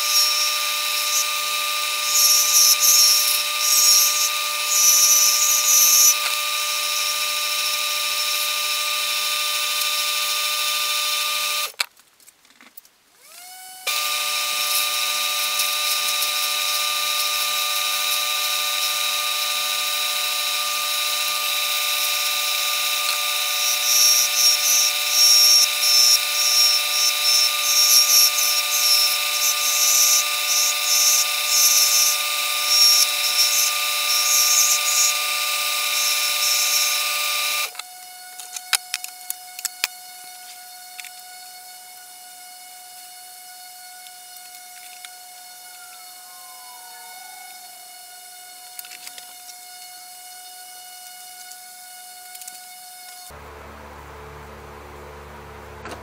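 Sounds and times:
lathe motor whine: 0:00.0 - 0:11.7, 0:13.2 - 0:56.0
turning tool scraping acrylic: 0:00.0 - 0:11.7, 0:13.9 - 0:42.0.

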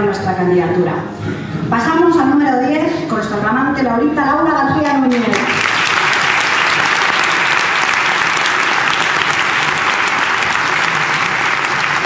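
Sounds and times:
audience applauding: 0:05.1 - 0:12.0.

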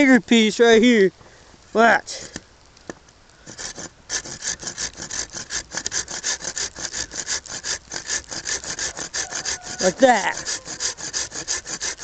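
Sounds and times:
hand saw cutting wood: 0:03.4 - 0:12.0.

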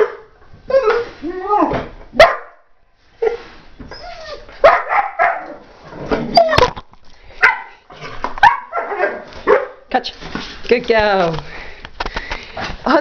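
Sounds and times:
dog barking and yipping: 0:02.2 - 0:02.6, 0:04.3 - 0:05.7, 0:07.4 - 0:09.9.

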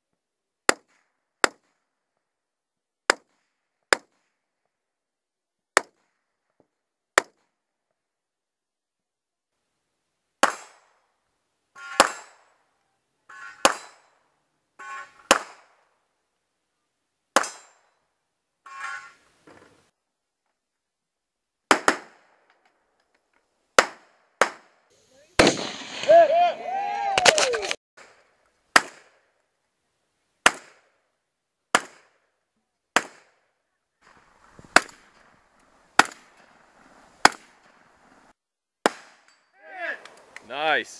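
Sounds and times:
shotgun shots: 0:10.4 - 0:10.9, 0:11.9 - 0:12.6, 0:13.4 - 0:14.2, 0:14.9 - 0:15.8, 0:25.4 - 0:26.3, 0:38.8 - 0:39.3
gunshots with ringing tail: 0:25.4 - 0:26.3.

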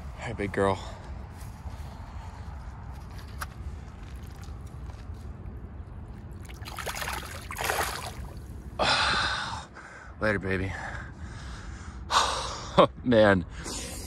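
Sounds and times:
water sloshing: 0:06.2 - 0:08.5
fish splashing: 0:06.4 - 0:08.5.

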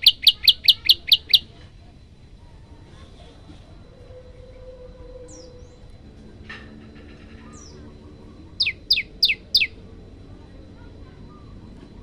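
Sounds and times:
bird calling: 0:00.0 - 0:01.6, 0:07.1 - 0:09.9
sharp downward-sweeping bird notes: 0:07.5 - 0:09.8.

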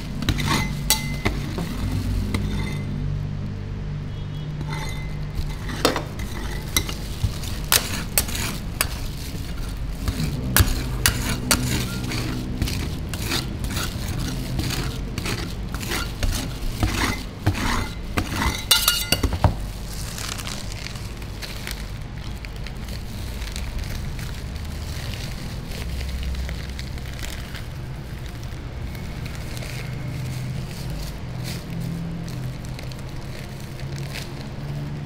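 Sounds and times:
metal spatulas scraping steel plate: 0:00.0 - 0:03.0, 0:04.6 - 0:19.4.

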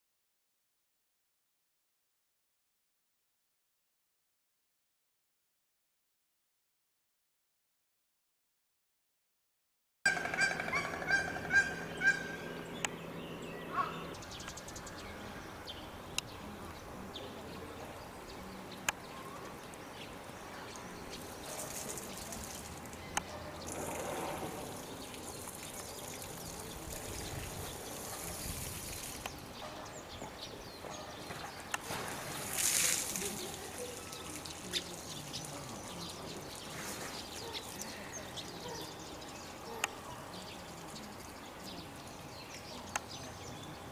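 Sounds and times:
honking animal calls: 0:10.1 - 0:12.6
outdoor zoo background: 0:10.1 - 0:43.9.

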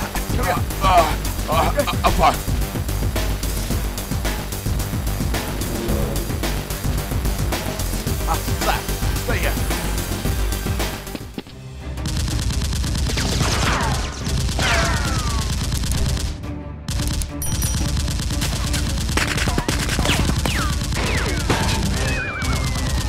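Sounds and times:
rapid automatic gunfire: 0:12.0 - 0:16.3, 0:17.0 - 0:22.0.

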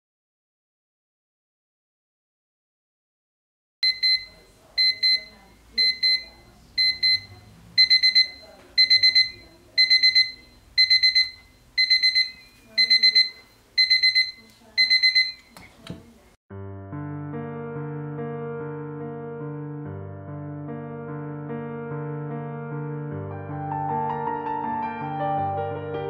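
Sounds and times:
alarm clock beeping: 0:03.8 - 0:15.6
piano music: 0:16.5 - 0:26.0.

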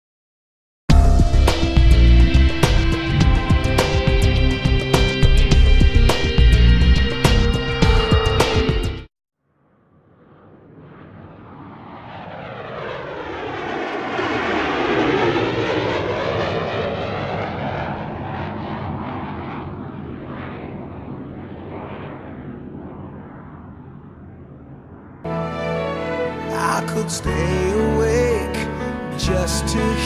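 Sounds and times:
airplane flying past: 0:09.7 - 0:30.0.

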